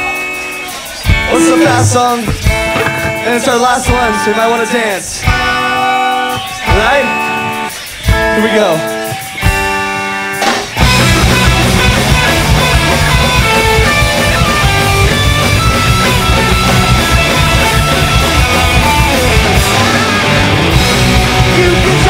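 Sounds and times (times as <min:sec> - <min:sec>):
punk rock band playing: 0:00.0 - 0:22.0
electric guitar chord ringing: 0:01.3 - 0:03.3.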